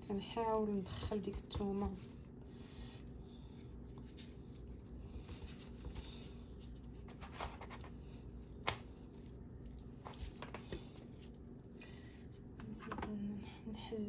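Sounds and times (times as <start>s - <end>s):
handling meat: 0.0s - 13.2s.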